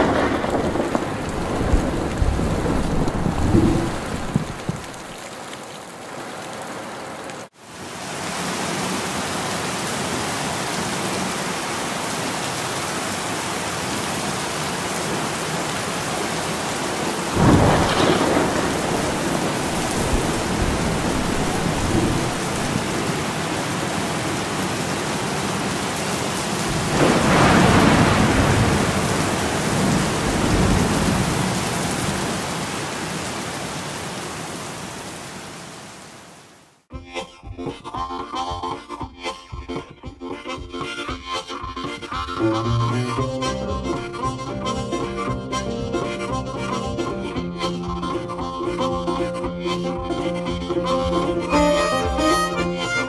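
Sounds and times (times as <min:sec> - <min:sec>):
loud thunder: 0:00.0 - 0:04.8, 0:17.4 - 0:23.0, 0:26.7 - 0:31.6
rain falling on wet ground: 0:00.0 - 0:36.9.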